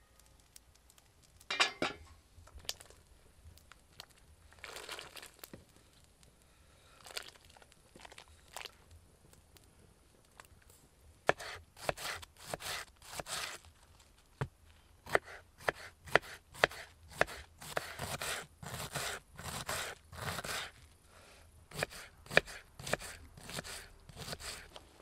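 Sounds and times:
knife crunching through cabbage: 11.3s - 13.7s, 15.1s - 20.8s, 21.7s - 24.8s.

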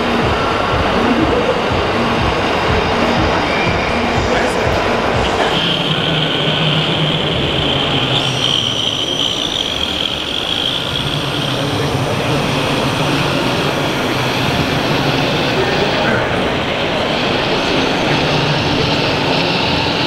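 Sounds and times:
crowded hall noise: 0.0s - 20.0s
toy vehicle motor whining: 5.5s - 15.3s.

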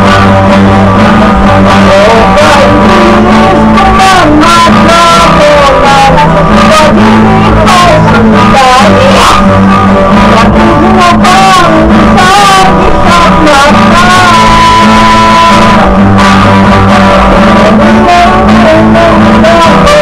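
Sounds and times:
acoustic guitar strumming: 0.0s - 20.0s
man singing loudly: 0.0s - 20.0s.

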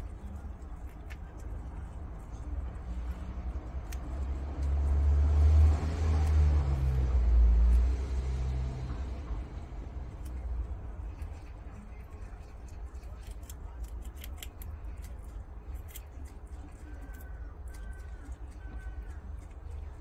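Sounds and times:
animals chewing grass: 0.0s - 20.0s
low rumble: 1.7s - 13.2s.

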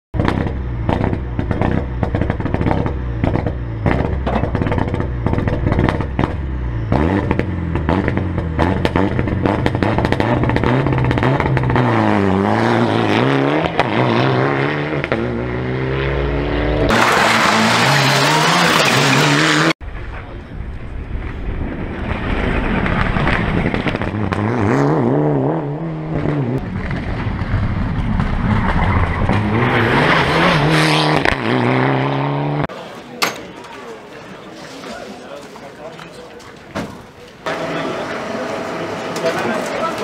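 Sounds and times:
car engine revving: 0.2s - 19.8s, 22.0s - 32.7s
engine crackling pops: 19.9s - 24.4s.

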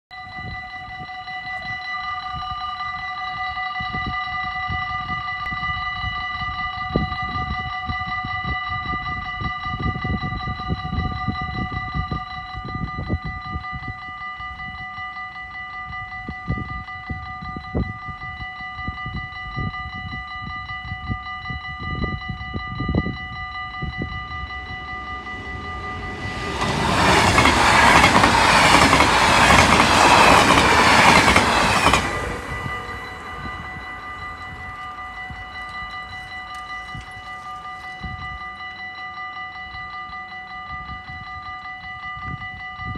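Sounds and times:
level crossing warning bell: 0.1s - 42.9s
electric train rushing past: 22.4s - 38.0s.

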